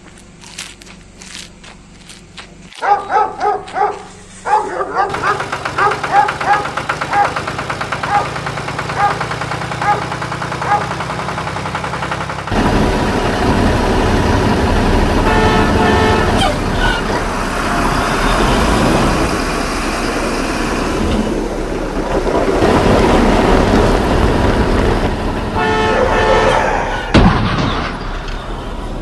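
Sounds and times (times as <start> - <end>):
vehicle engine running: 0.0 - 29.0
vehicle horn honking: 15.1 - 17.0, 25.5 - 27.2.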